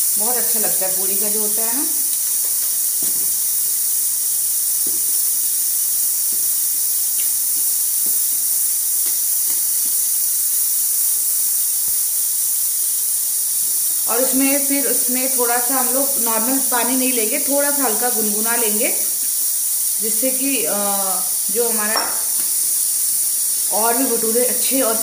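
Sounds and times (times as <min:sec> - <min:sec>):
high-pitched hiss: 0:00.0 - 0:25.0
speech: 0:00.2 - 0:02.0, 0:14.1 - 0:19.0, 0:20.0 - 0:22.1, 0:23.7 - 0:25.0.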